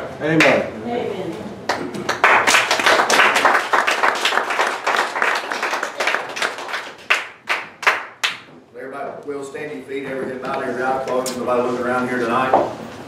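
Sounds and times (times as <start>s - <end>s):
crowd applauding: 1.7s - 8.4s.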